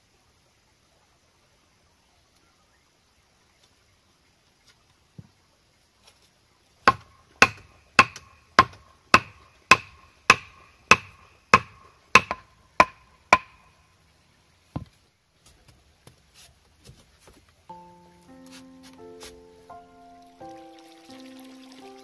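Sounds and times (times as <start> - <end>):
hammer blows on bamboo panel: 6.9 - 13.8.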